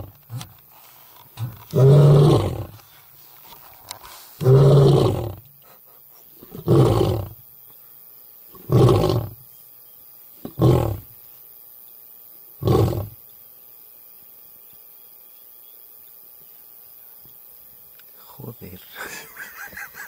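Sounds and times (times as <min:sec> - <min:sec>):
lion roaring: 0:01.4 - 0:02.8, 0:04.4 - 0:05.4, 0:06.4 - 0:07.4, 0:08.6 - 0:09.4, 0:10.4 - 0:11.1, 0:12.6 - 0:13.2.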